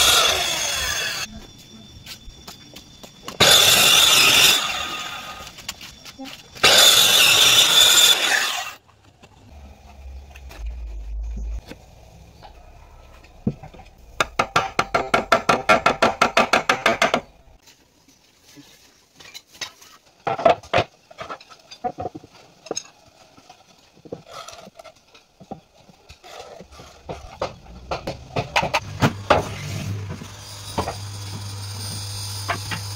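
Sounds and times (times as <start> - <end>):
power saw cutting wood: 0.0 - 1.3, 3.4 - 5.6, 6.6 - 8.8, 28.3 - 32.9.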